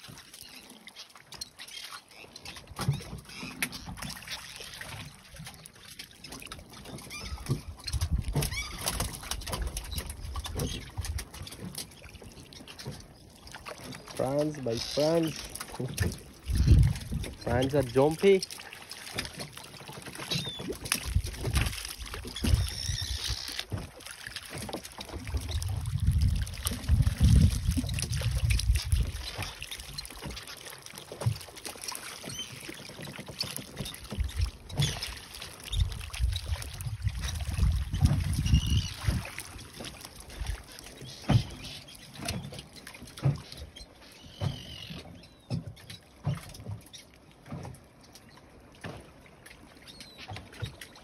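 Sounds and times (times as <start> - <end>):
fish flicking in a net: 7.4 - 12.2, 18.5 - 42.5.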